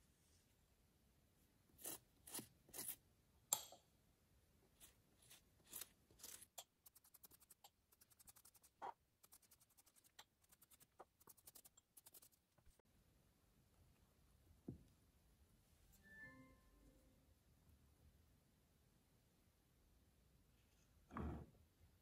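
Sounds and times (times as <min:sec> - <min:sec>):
pastry brush strokes: 0:01.7 - 0:03.0, 0:04.7 - 0:12.8
light ticking scratches: 0:05.7 - 0:12.7.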